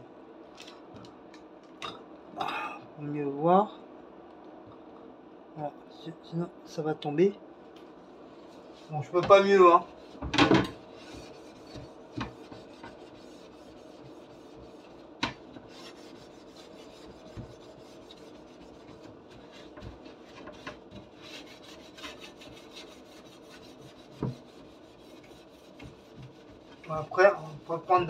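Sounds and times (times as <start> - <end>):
sponge scrubbing metal rack: 10.8 - 28.0.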